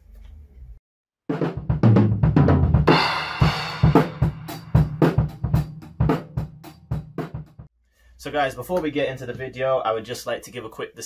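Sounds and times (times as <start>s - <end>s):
drum kit played hard: 1.3s - 7.7s.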